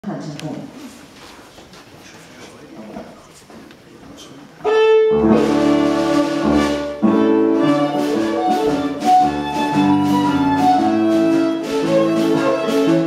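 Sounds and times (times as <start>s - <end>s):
dance band playing a jig: 4.7s - 13.0s.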